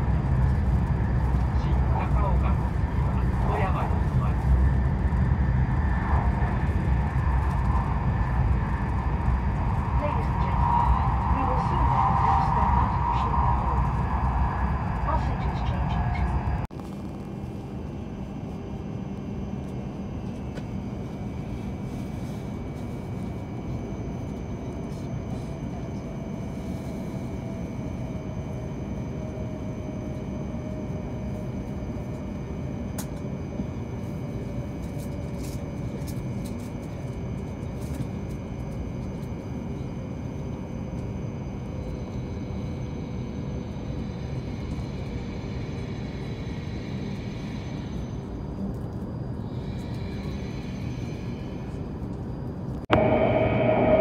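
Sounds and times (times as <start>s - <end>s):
train running gear rumble: 0.0s - 18.4s
faint falling whine: 0.0s - 18.6s, 19.2s - 54.0s.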